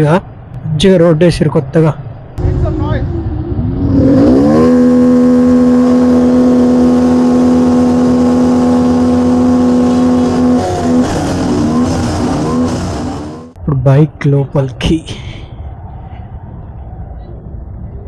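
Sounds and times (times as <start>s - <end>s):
motorcycle engine revving: 2.4s - 13.6s.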